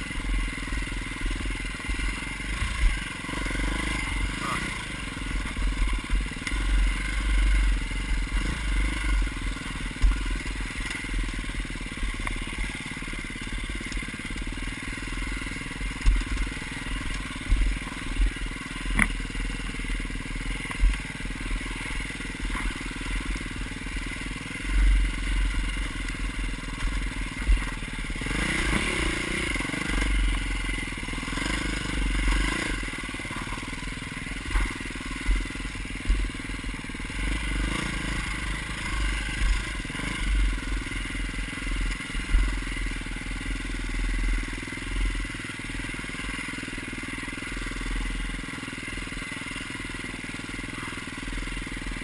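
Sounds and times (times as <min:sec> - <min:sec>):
dirt bike engine revving: 0:00.0 - 0:52.0
low rumble from bumps: 0:04.8 - 0:12.7, 0:15.2 - 0:23.9, 0:24.6 - 0:29.5.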